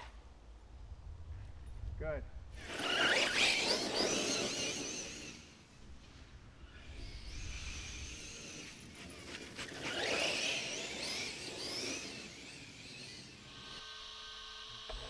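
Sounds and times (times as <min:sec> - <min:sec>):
electric motor whining: 0:02.6 - 0:05.6, 0:06.6 - 0:15.0.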